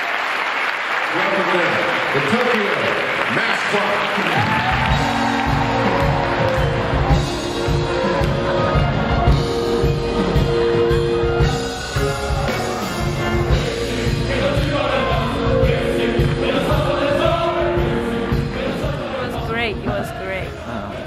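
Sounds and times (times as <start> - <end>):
drum and bass beat: 4.6 - 21.0
choir singing: 4.9 - 21.0.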